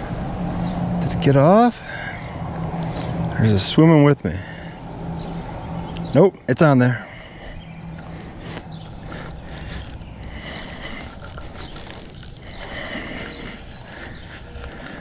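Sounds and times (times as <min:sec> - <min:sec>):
fishing reel being cranked: 0:09.4 - 0:15.0.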